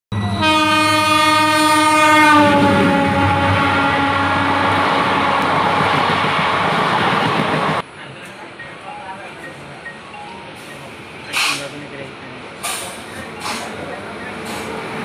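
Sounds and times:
train horn: 0:00.2 - 0:05.8
train coaches rushing and clattering: 0:02.3 - 0:15.0.

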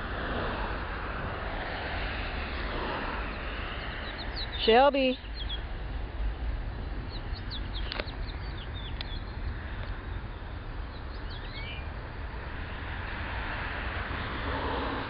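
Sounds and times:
broad rushing noise: 0:00.0 - 0:15.0
outdoor rumble and hiss: 0:00.0 - 0:15.0
small birds chirping: 0:03.1 - 0:12.0.

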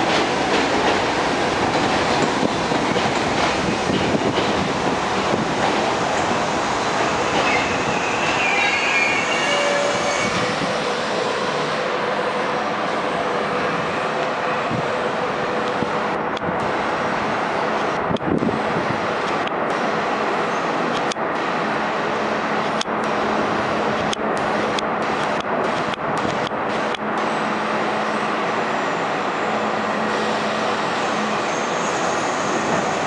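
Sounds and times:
steady rushing noise: 0:10.2 - 0:29.4.

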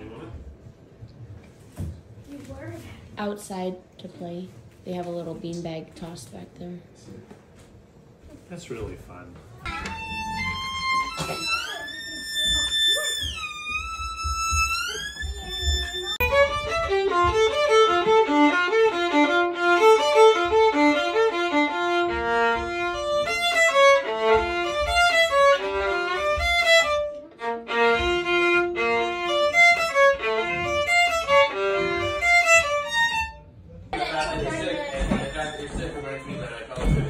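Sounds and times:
solo violin playing: 0:09.7 - 0:33.5.

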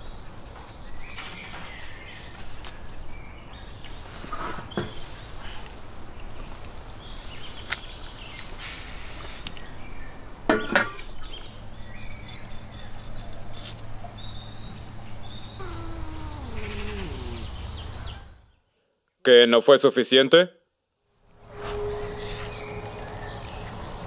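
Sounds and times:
cats meowing: 0:15.4 - 0:17.7.

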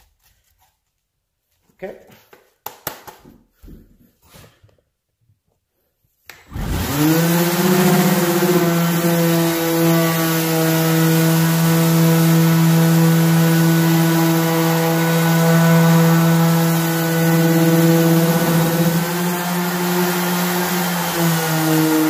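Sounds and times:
orbital sander on wood: 0:06.5 - 0:22.0.

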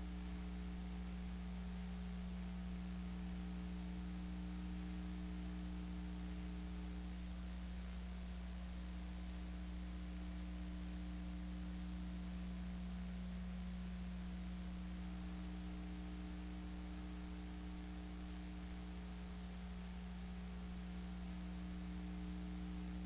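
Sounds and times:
videotape hum and hiss: 0:06.8 - 0:15.0
high-pitched whine: 0:07.0 - 0:15.0.

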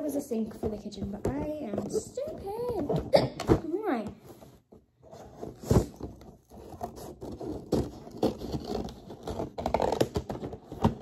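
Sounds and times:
cardboard scraping and rubbing: 0:04.3 - 0:11.0.

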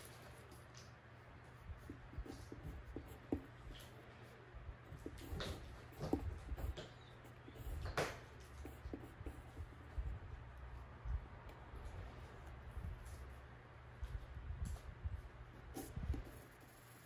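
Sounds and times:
faint low hum: 0:00.0 - 0:17.0
pencil writing on paper: 0:01.6 - 0:04.0, 0:04.8 - 0:10.5, 0:15.6 - 0:17.0.

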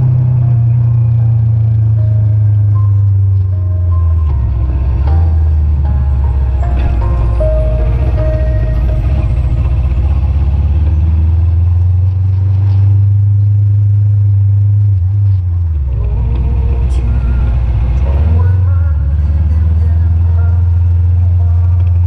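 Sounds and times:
motorcycle engine rumble: 0:00.0 - 0:22.0.

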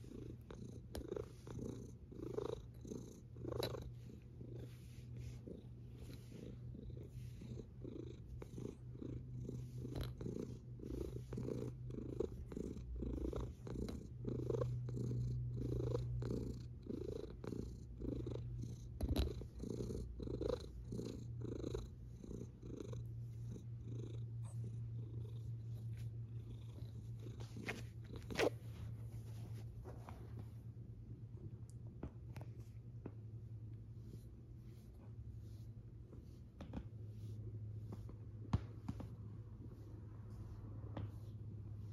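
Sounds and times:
cat purring: 0:00.0 - 0:30.4.

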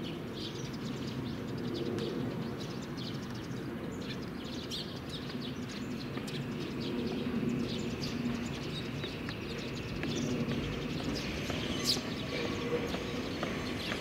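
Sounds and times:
birds chirping: 0:00.0 - 0:14.0.

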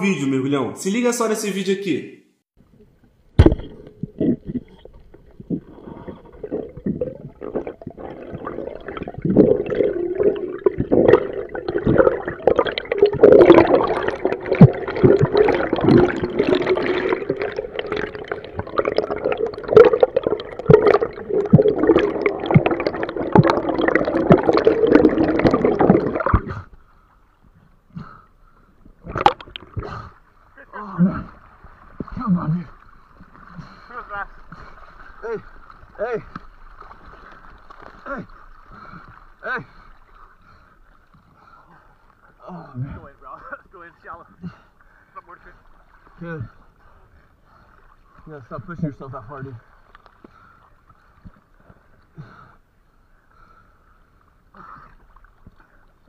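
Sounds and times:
underwater gurgling with clicks: 0:02.7 - 0:26.8, 0:28.8 - 0:30.2.

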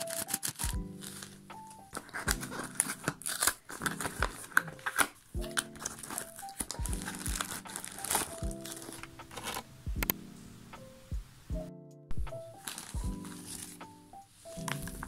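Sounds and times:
plastic bag crinkling: 0:00.0 - 0:09.7, 0:12.5 - 0:13.8
background music: 0:00.0 - 0:15.0
cardboard flaps rustling: 0:01.9 - 0:09.6.

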